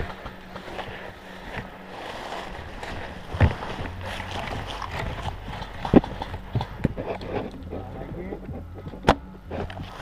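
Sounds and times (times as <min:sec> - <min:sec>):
footsteps crunching dry leaves: 0:00.0 - 0:07.3
clothing and gear rustling: 0:00.0 - 0:10.0.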